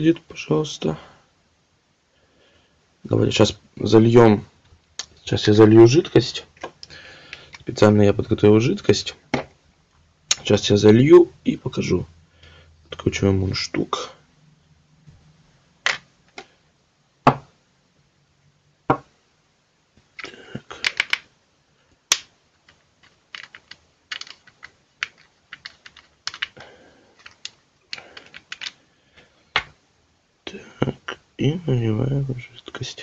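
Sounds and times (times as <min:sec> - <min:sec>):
parts tapping on wooden desk: 0:09.3 - 0:09.6, 0:15.8 - 0:16.5, 0:17.3 - 0:17.5, 0:18.9 - 0:19.1
small parts clicking: 0:20.2 - 0:21.3, 0:22.1 - 0:28.8.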